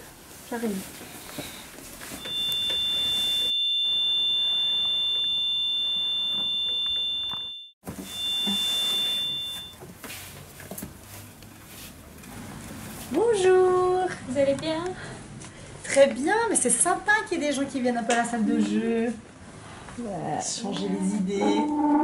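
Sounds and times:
high-pitched two-tone electronic beep: 2.2s - 9.8s.

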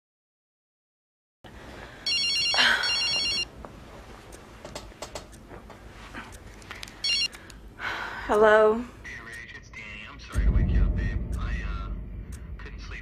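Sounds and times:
phone ringing electronic warble: 2.1s - 3.4s, 7.0s - 7.3s
small clicks: 6.3s - 7.6s.

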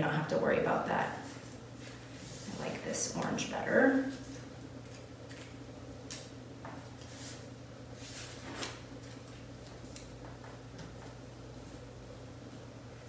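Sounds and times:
steady low hum: 0.0s - 13.0s
paper rustling and scraping: 8.0s - 9.4s.

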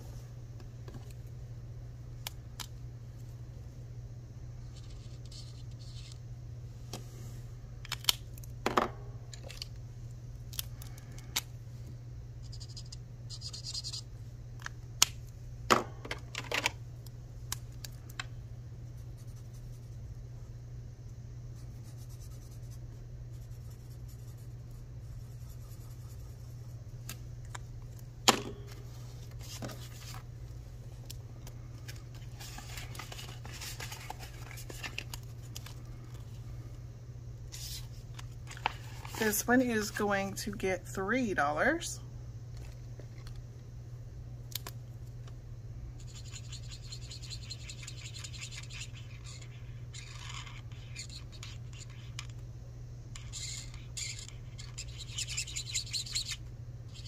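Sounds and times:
paper and banknotes rustling: 31.8s - 35.9s.

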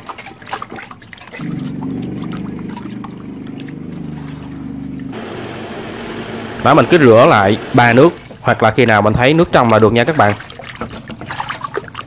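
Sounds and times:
water sloshing and splashing: 0.0s - 5.1s, 6.8s - 12.0s
steady low hum: 1.8s - 8.2s.

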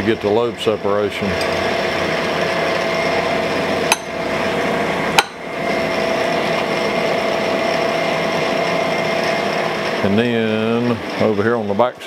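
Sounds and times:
grinder humming: 0.0s - 11.8s
sharp metal knocks: 3.9s - 4.2s, 5.2s - 5.4s.

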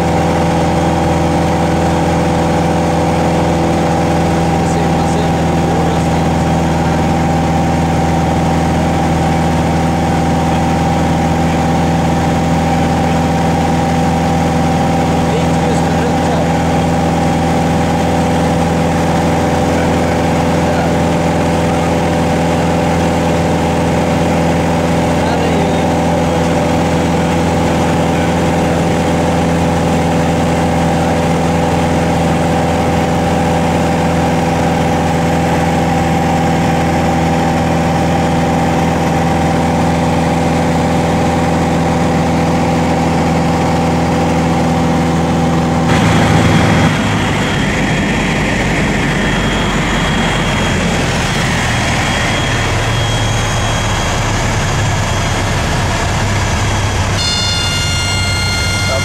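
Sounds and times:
light aircraft engine droning: 0.0s - 59.0s
faint high whine: 45.9s - 59.0s.

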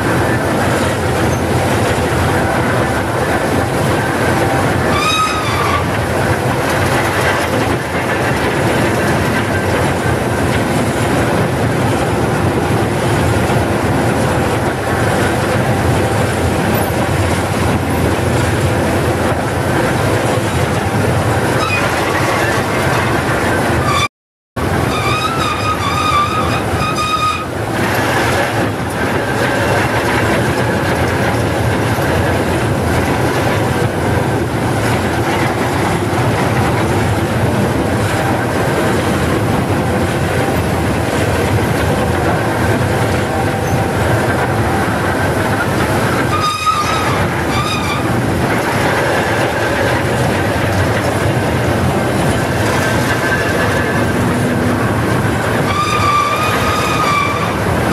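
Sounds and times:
diesel engine under load: 0.0s - 57.9s
high squeal: 4.7s - 6.0s, 21.6s - 24.1s, 24.8s - 30.2s, 46.0s - 50.4s, 55.5s - 57.9s.

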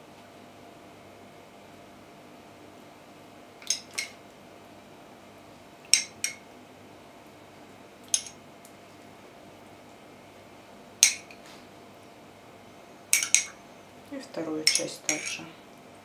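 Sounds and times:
metal spoon clinking on glass: 3.6s - 4.2s, 8.1s - 8.4s, 13.1s - 13.6s, 14.6s - 15.4s.

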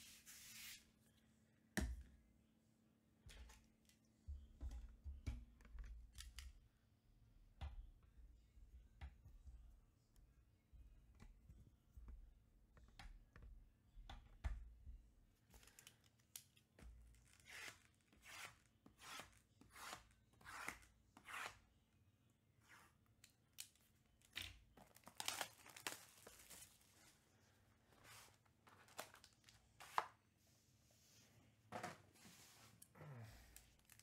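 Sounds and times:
plastic wrap tearing: 24.8s - 26.8s.

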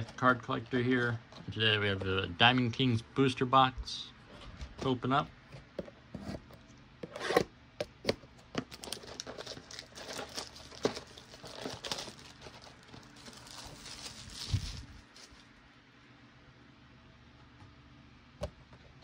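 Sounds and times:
packaging crinkling and tearing: 8.6s - 15.5s.

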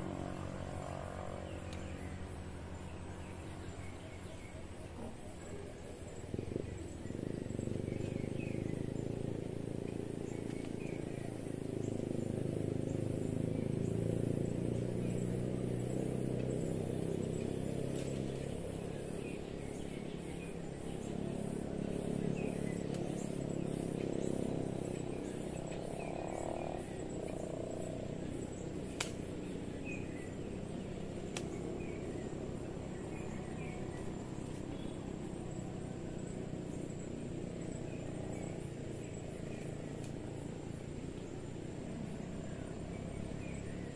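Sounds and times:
insects chirping: 0.0s - 43.9s
steady low rumble: 0.0s - 43.9s
faint bird chirps: 1.3s - 43.9s
sharp clicks: 29.0s - 29.2s.

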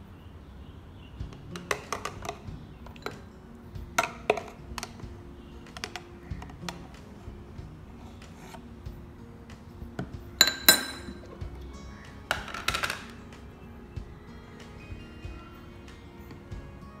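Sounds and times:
metal spoon tapping glass jar: 10.4s - 11.3s.

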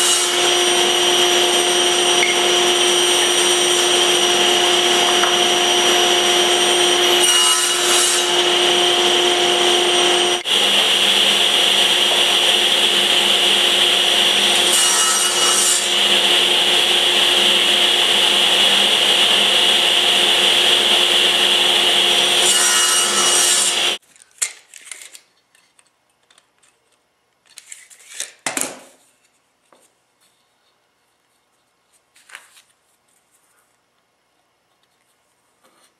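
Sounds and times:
saw blade cutting wood: 0.0s - 24.0s
table saw whining: 0.0s - 24.0s.

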